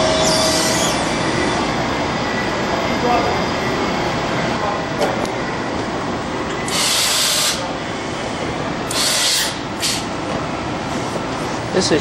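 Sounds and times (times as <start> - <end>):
machining center running: 0.0 - 12.0
compressed air hiss: 6.7 - 7.6.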